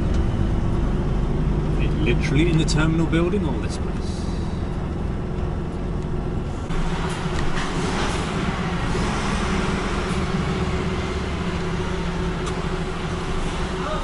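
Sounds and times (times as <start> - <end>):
lorry diesel engine humming: 0.0 - 14.0
rushing noise: 6.4 - 14.0.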